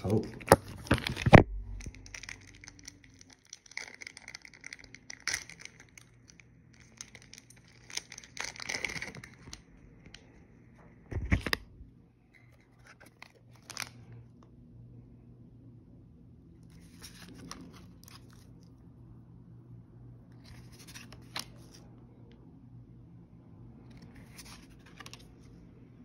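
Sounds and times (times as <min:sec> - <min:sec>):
wrapper tearing and crinkling: 0:00.0 - 0:09.6, 0:12.8 - 0:14.0, 0:16.7 - 0:18.5.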